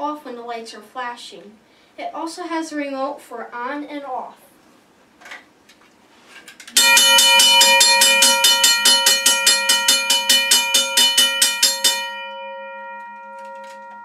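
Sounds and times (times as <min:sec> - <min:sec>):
railroad crossing bell ringing: 0:06.8 - 0:14.0.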